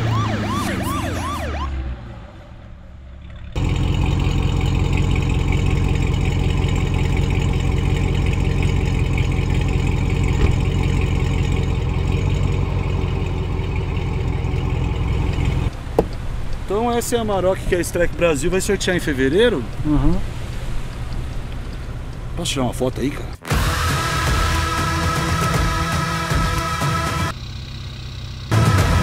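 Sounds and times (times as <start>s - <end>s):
police siren sweeping: 0.0s - 2.8s
car engine idling: 2.1s - 29.0s.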